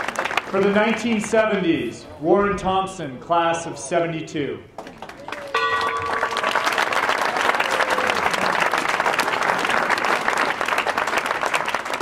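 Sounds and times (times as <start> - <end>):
crowd applauding: 0.0 - 1.3, 4.8 - 12.0
bronze bell ringing: 5.5 - 7.1.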